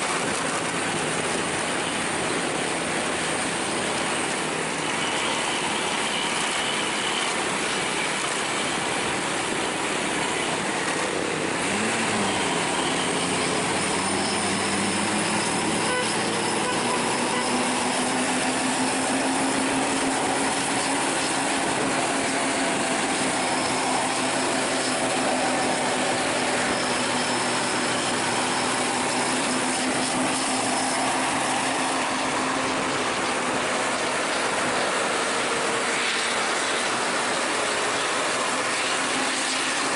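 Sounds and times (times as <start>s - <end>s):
tyres and air rushing: 8.3s - 39.9s
low engine hum: 9.0s - 39.9s.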